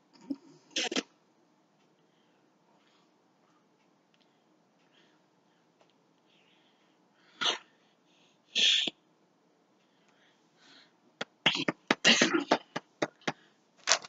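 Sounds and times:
sharp clicks and taps: 11.2s - 14.0s.

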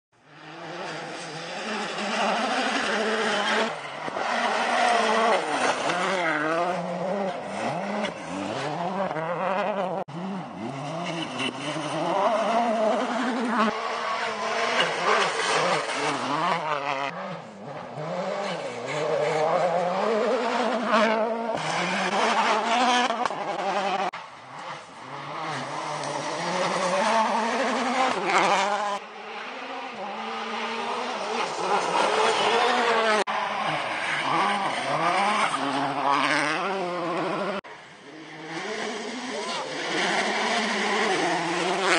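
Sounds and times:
rally car engines revving: 0.2s - 41.9s.

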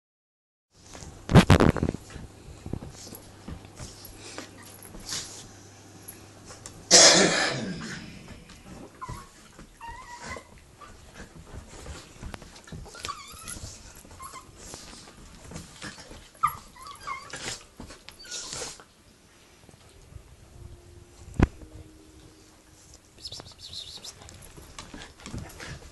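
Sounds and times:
dog whimpers and yips: 8.9s - 11.0s, 12.8s - 14.9s, 16.4s - 18.8s.

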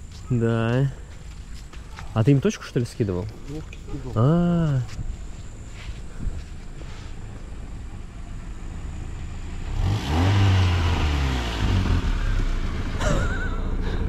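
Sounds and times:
car engine: 3.6s - 14.0s.

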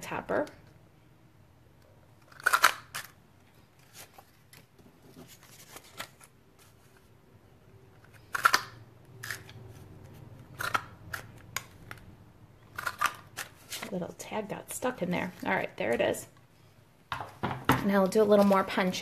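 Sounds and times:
paper handling: 3.6s - 7.1s.

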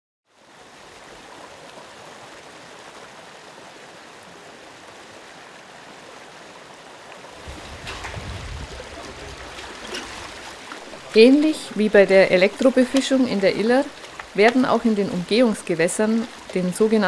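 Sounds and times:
river water rushing: 0.3s - 17.0s
people wading and splashing: 7.1s - 17.0s.

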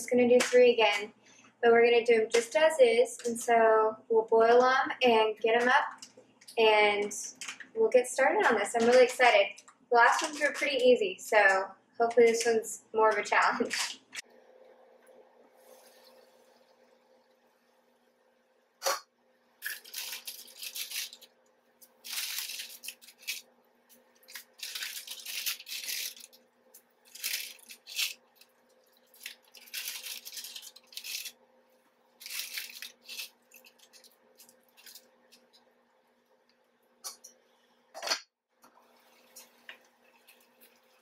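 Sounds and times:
plastic packets crinkling and tearing: 19.6s - 31.4s, 32.2s - 35.6s.

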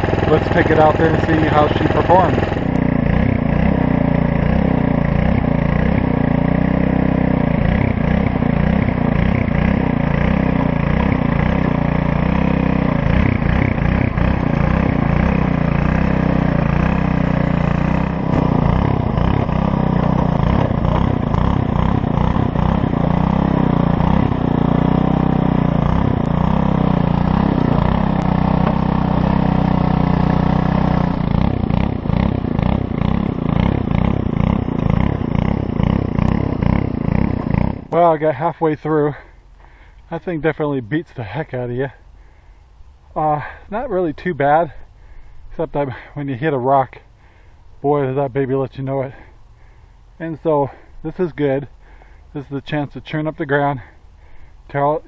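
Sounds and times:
tines churning soil: 0.0s - 41.6s
tiller engine under load: 0.0s - 55.0s.

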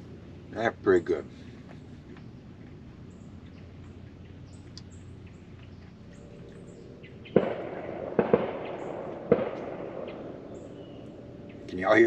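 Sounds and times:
distant echoing bangs: 6.4s - 11.7s.

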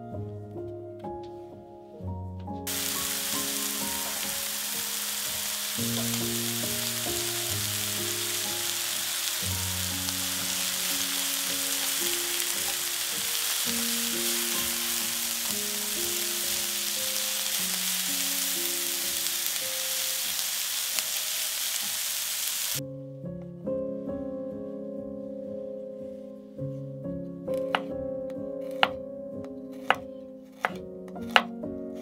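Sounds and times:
soft melody: 0.0s - 20.6s, 22.8s - 32.0s
food frying in oil: 2.7s - 22.8s.

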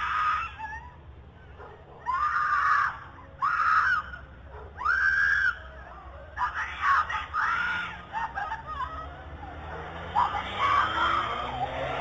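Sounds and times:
girl screaming: 6.4s - 9.0s, 10.2s - 11.5s.

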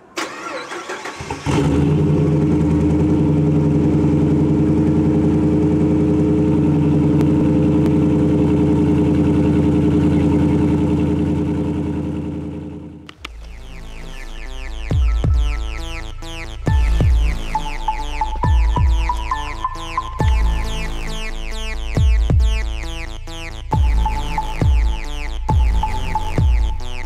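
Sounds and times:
engine cranking and idling: 0.1s - 13.9s.

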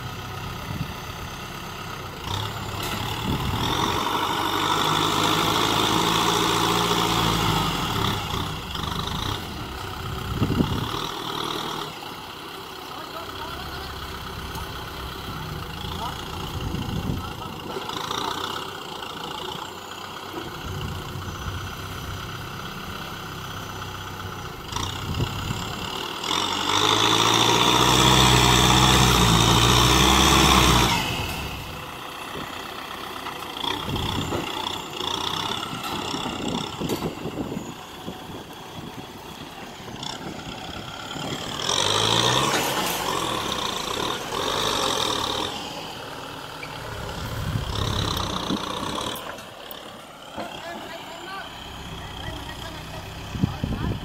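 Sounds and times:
tractor diesel engine revving: 0.0s - 54.0s.

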